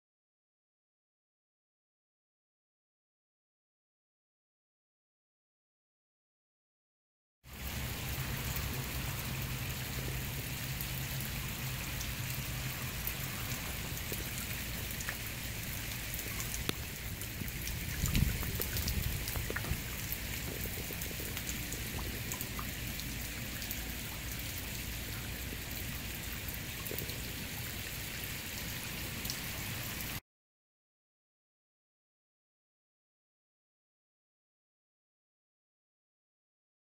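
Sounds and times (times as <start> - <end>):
rainwater running down chain: 7.5 - 30.2
small drip ticks: 7.5 - 30.2.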